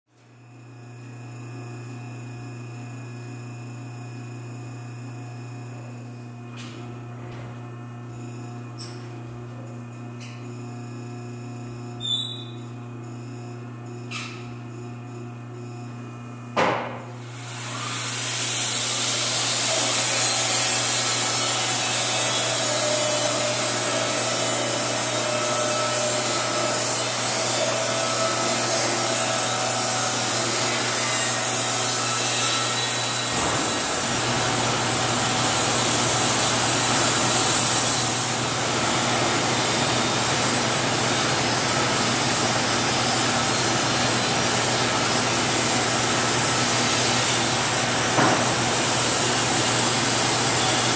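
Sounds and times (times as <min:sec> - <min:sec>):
sharp knock: 0:16.6 - 0:17.1
band sawmill sawing log: 0:17.2 - 0:50.9.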